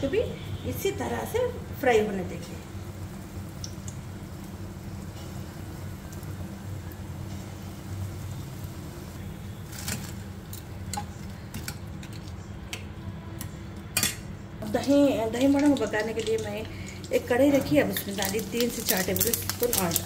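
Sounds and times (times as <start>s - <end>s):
batter sizzling in hot oil: 0.0s - 12.3s, 14.0s - 20.0s.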